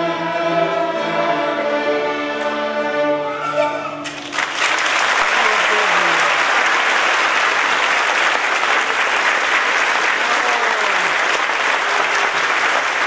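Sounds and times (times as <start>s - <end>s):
crowd applauding: 4.0s - 13.0s.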